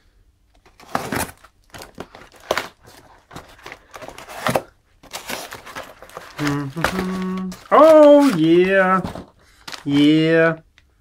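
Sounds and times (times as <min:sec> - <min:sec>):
cardboard box rustling: 0:00.6 - 0:10.2
box cutter slitting cardboard: 0:00.8 - 0:01.4.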